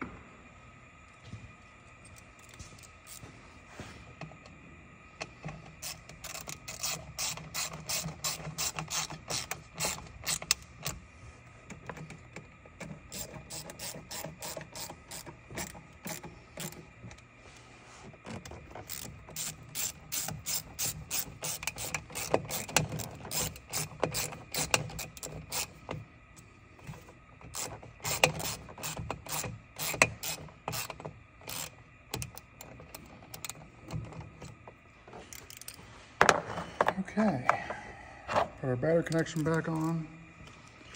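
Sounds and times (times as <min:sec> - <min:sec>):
ratchet wrench clicking: 0:05.8 - 0:11.0, 0:13.1 - 0:16.8, 0:18.8 - 0:25.8, 0:27.5 - 0:33.6, 0:35.3 - 0:35.8.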